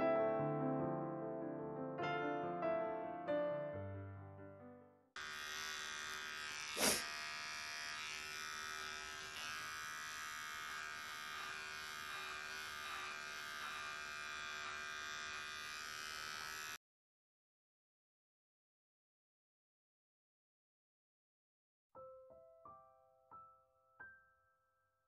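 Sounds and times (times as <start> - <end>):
electric hair clipper buzzing: 5.2 - 16.8.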